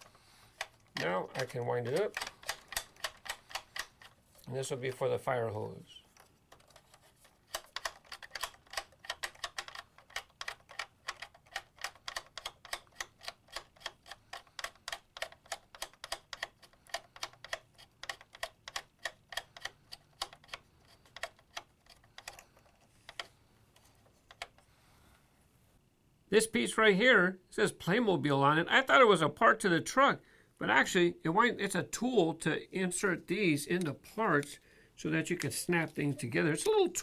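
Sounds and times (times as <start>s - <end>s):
toy hose reel clicking: 0.5s - 4.2s.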